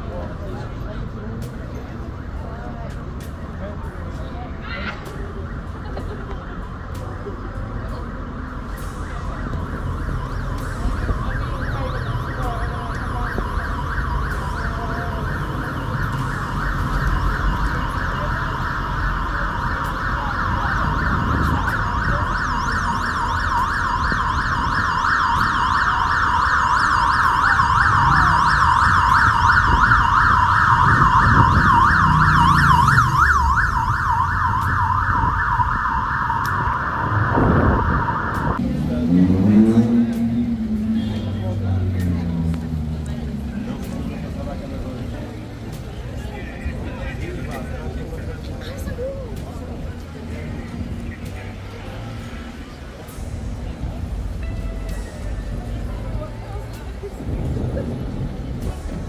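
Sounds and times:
low traffic rumble: 0:00.0 - 0:59.0
emergency siren warbling: 0:05.2 - 0:41.1.

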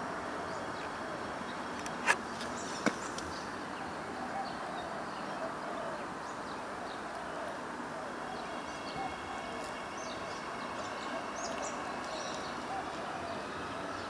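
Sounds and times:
outdoor background noise: 0:00.0 - 0:14.0.

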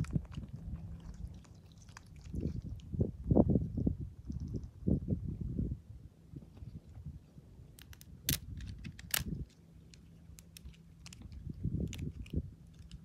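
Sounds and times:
dry twigs crackling: 0:07.8 - 0:13.0.

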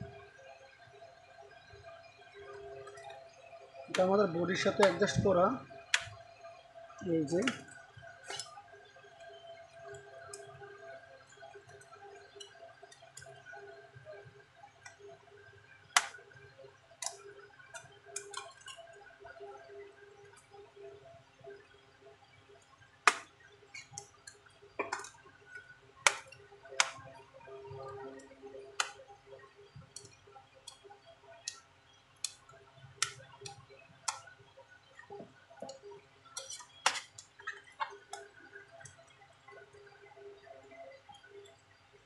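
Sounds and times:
plastic clicks and snaps: 0:16.0 - 0:16.2, 0:23.0 - 0:24.1, 0:26.0 - 0:27.0, 0:28.8 - 0:29.0, 0:33.0 - 0:34.3, 0:36.4 - 0:38.3.

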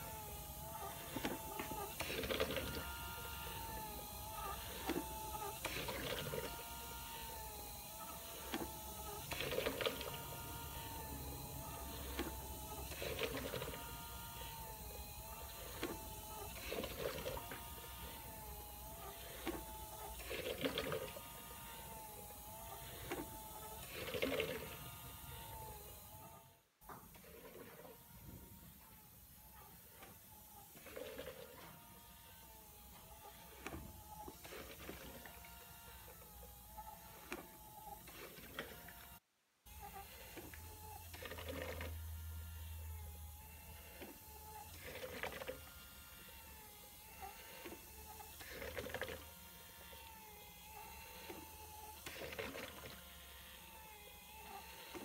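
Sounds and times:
clicking and rattling bursts: 0:00.0 - 0:28.4
motor whine: 0:00.0 - 0:55.0.

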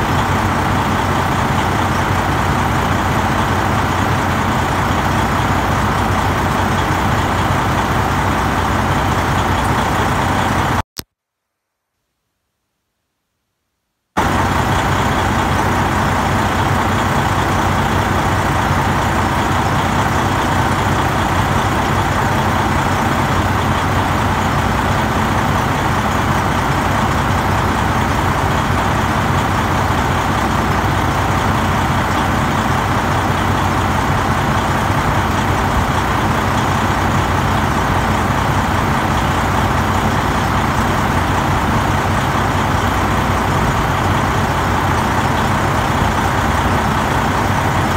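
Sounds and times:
diesel truck engine idling: 0:00.0 - 0:10.8, 0:14.2 - 0:47.9.

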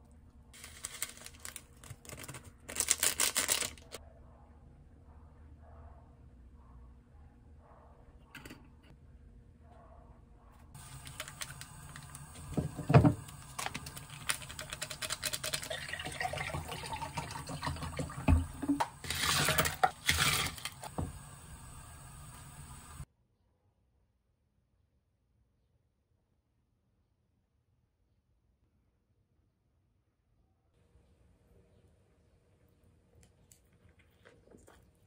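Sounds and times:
water pouring: 0:10.8 - 0:23.0.

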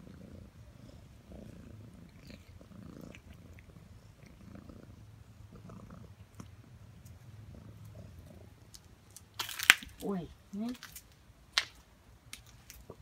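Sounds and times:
cat purring: 0:00.0 - 0:08.8.

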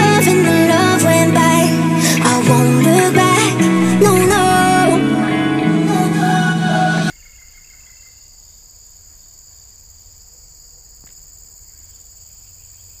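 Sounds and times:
background music: 0:00.0 - 0:07.1
high-pitched insect chorus: 0:07.1 - 0:13.0.

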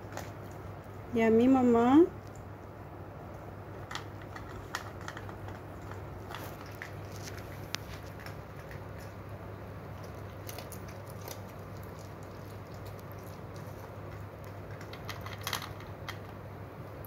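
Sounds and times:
dogs crunching food from metal bowls: 0:03.7 - 0:16.5.

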